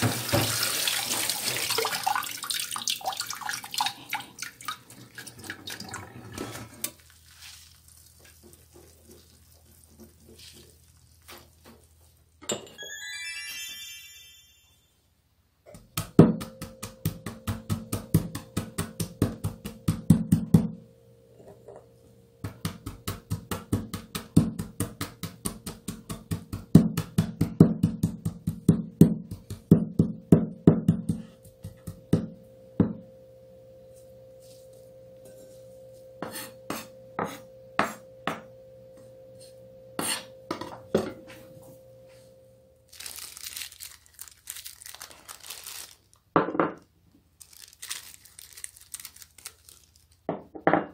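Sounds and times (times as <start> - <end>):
plastic glove crinkling: 6.9 - 12.4, 42.9 - 46.3, 47.2 - 50.3
pounding on wooden board: 22.4 - 31.2.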